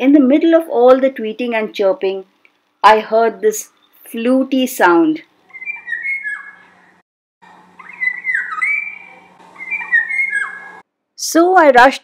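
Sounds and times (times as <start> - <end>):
oriole fluty whistled song: 5.5 - 6.7, 7.8 - 10.8
faint bird chirps: 5.5 - 7.0, 7.7 - 10.8.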